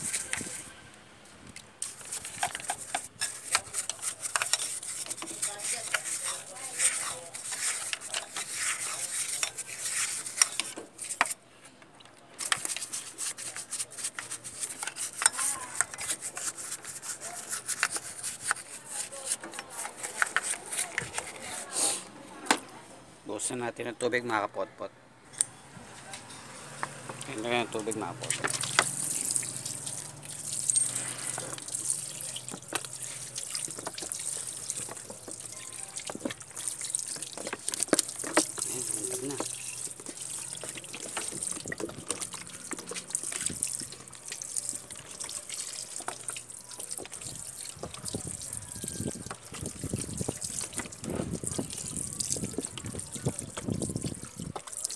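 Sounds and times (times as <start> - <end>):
brush scrubbing metal gears: 0.0 - 0.7, 1.8 - 11.4, 12.4 - 21.7, 27.3 - 48.1
water splashing on metal engine: 27.8 - 54.9.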